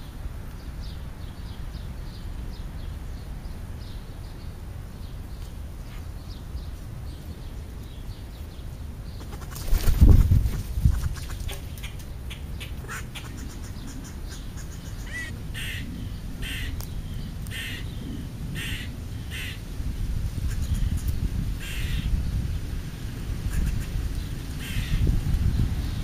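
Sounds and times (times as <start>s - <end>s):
crows cawing: 12.8s - 16.8s, 17.5s - 17.9s, 18.6s - 19.6s, 21.6s - 22.1s, 24.6s - 25.1s.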